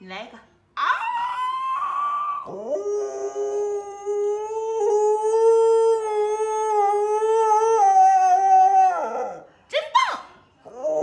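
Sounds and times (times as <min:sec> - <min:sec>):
puppy howling: 0:00.8 - 0:09.5.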